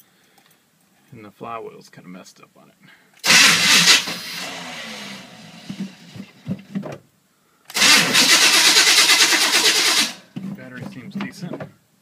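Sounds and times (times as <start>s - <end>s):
engine cranking: 3.2s - 6.1s, 7.7s - 10.2s
engine sputtering: 3.2s - 6.4s, 7.7s - 10.2s.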